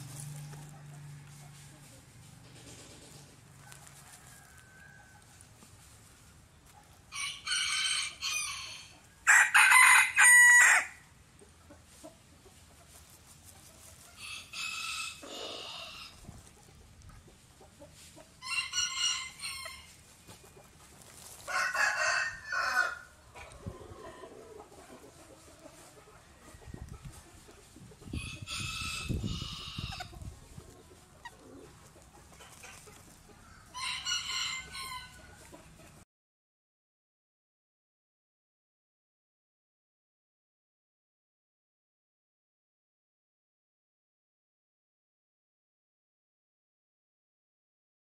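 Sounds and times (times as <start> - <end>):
chicken shrill calling: 7.1 - 11.0, 33.7 - 35.2.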